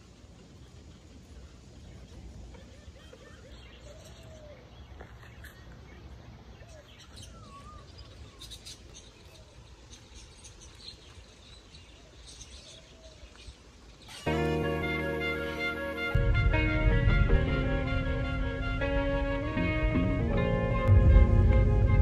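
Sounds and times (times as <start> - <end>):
birds chirping and calling: 0.4 - 14.8
music with violin melody: 14.2 - 22.0
low outdoor rumble: 16.2 - 22.0.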